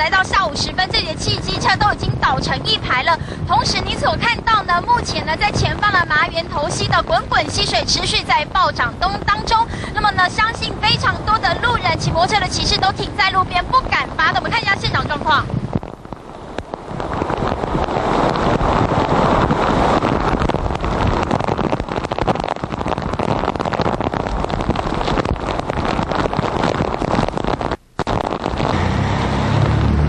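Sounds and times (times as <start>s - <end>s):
rushing floodwater: 0.0s - 27.6s
heavy rain: 0.0s - 30.0s
storm wind gusting: 0.0s - 30.0s
low rumble: 15.0s - 30.0s.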